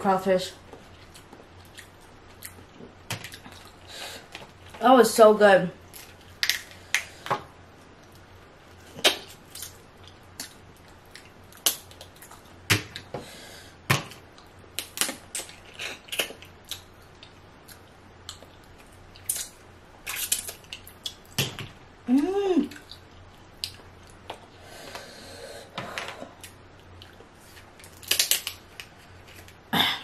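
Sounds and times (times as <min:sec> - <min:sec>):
crawfish shells cracking: 0:05.9 - 0:07.1, 0:26.3 - 0:29.6.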